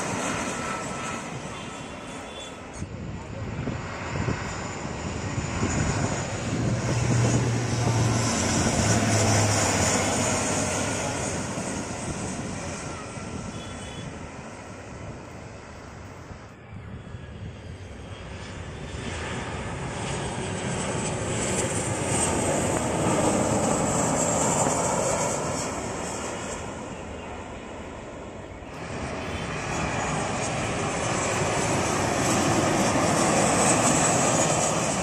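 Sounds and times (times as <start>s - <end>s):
jet airliner engines passing low: 0.0s - 35.0s.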